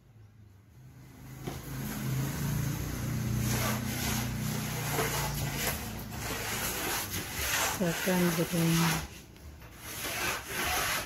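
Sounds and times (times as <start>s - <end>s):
light scrapes and knocks: 3.3s - 11.0s.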